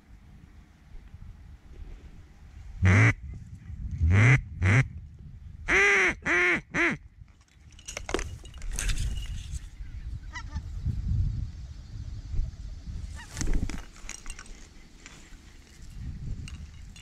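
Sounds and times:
duck quacking: 2.8s - 3.2s.

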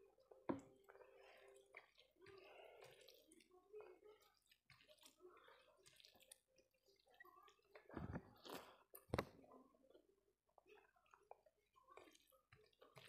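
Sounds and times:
fingers squishing rice: 0.0s - 9.4s
chewing with wet mouth sounds: 0.0s - 13.0s.

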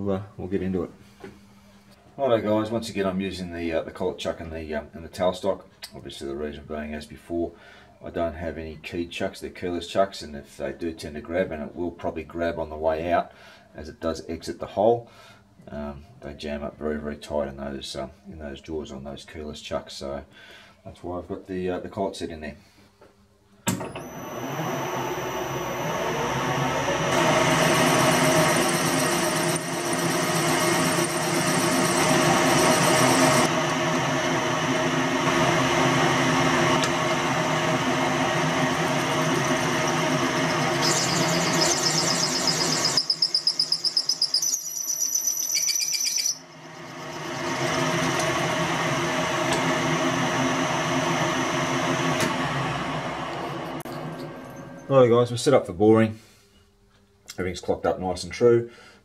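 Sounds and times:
drill cutting metal: 23.7s - 36.2s, 36.8s - 50.4s
high pulsing whine: 23.9s - 33.7s, 38.8s - 48.6s
metal lathe running: 23.9s - 54.8s.

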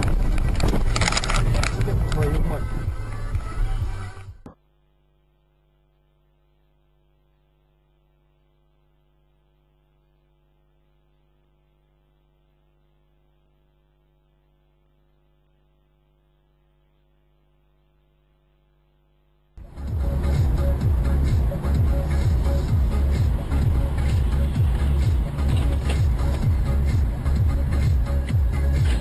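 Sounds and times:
faint electrical hum: 4.5s - 19.6s.

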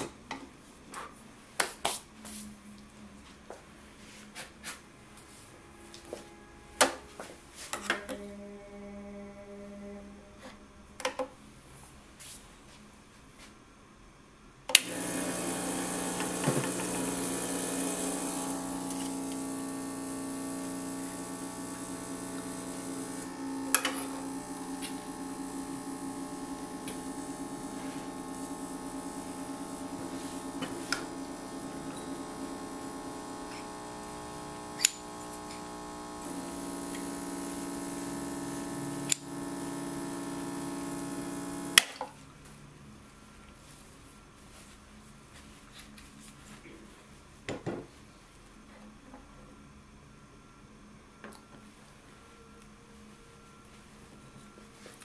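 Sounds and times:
espresso machine pump humming: 14.8s - 42.0s.

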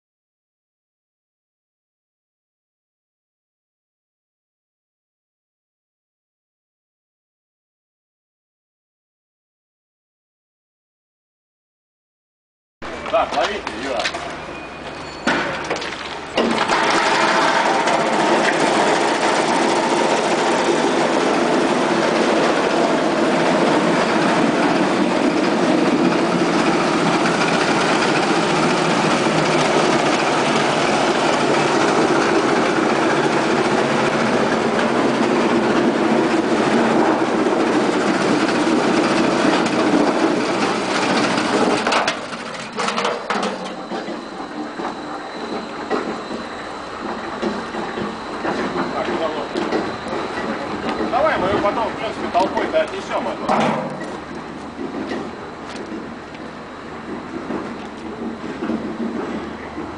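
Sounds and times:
roll-forming machine running: 15.6s - 59.9s.

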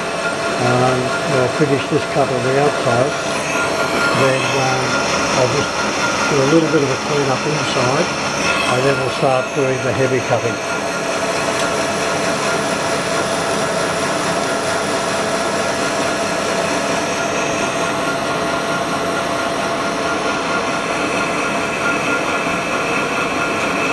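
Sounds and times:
lathe machine hum: 0.0s - 23.9s
whining tones: 0.0s - 23.9s.

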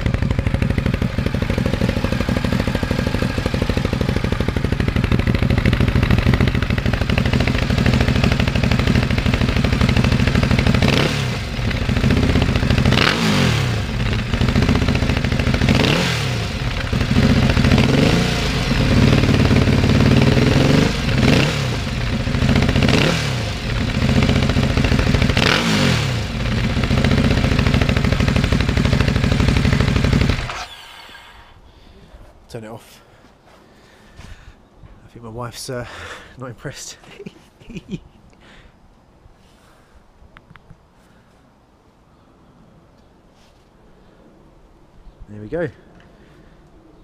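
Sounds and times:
motorcycle engine idling and revving: 0.0s - 31.5s.

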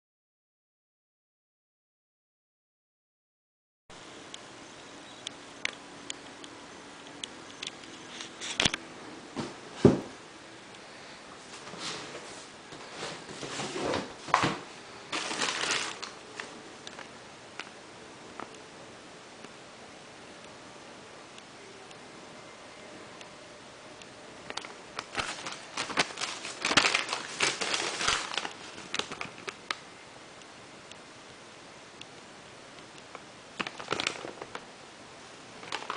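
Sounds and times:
paper crinkling and rustling: 12.9s - 17.1s, 25.0s - 29.6s, 33.6s - 34.6s, 35.6s - 35.9s.

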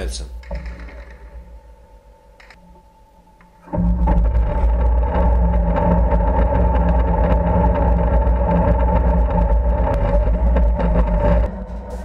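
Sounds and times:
high engine whine: 3.7s - 12.0s.

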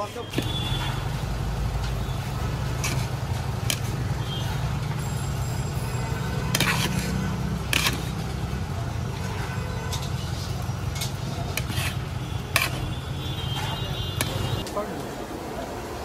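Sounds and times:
road traffic rumble: 0.0s - 16.0s
ladles clinking on steel pots: 2.8s - 5.4s, 9.0s - 14.6s.

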